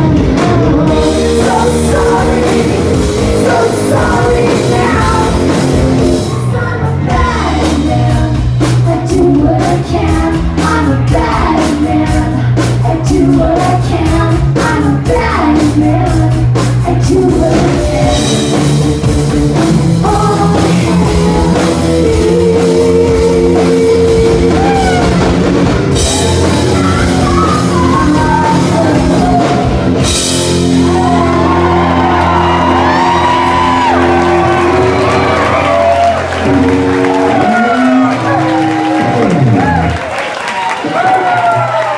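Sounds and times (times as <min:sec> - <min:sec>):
women singing: 0:00.0 - 0:18.7, 0:20.0 - 0:25.2, 0:26.0 - 0:29.8
live rock band playing: 0:00.0 - 0:41.9.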